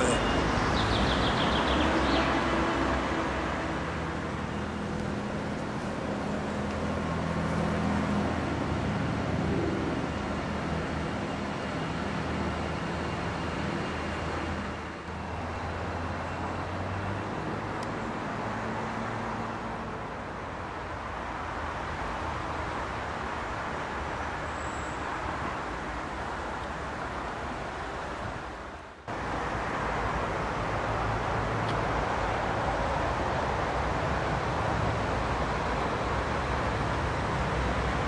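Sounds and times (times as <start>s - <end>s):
road traffic rumble: 0.0s - 38.0s.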